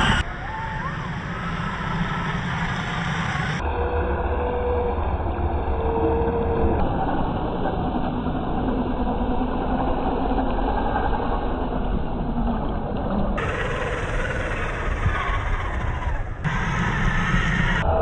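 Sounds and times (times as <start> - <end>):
electric motor running: 13.4 - 17.8.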